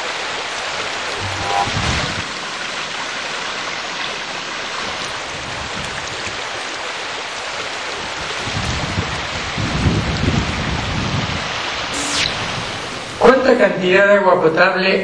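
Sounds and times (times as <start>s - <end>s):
flowing water rushing: 0.0s - 13.3s
short tone: 1.1s - 3.2s.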